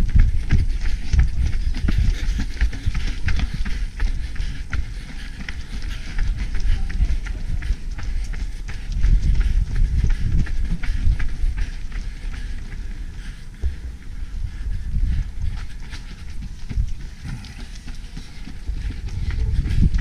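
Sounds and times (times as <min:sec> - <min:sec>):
running footsteps on pavement: 0:00.0 - 0:20.0
wind rumble on microphone: 0:00.0 - 0:20.0
microphone jostling: 0:14.8 - 0:20.0.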